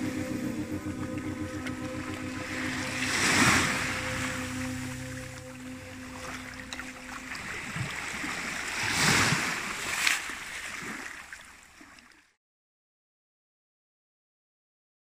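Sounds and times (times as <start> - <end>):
held musical chord: 0.0 - 9.8
sea waves washing onto beach: 6.8 - 11.4.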